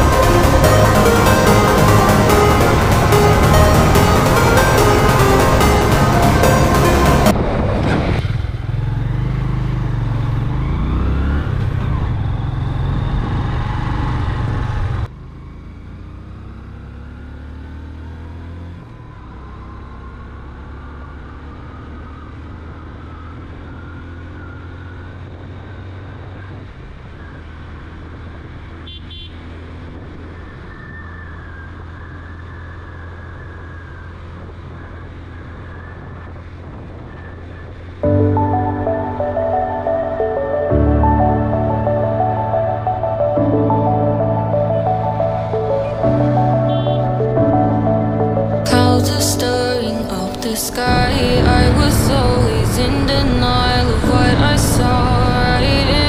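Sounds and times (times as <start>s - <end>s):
motorcycle engine revving: 0.0s - 38.1s
horn toot: 46.5s - 47.2s.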